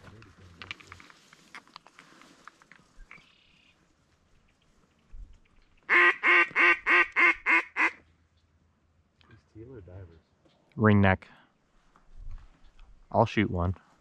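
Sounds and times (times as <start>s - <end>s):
duck call quacks: 5.9s - 8.0s.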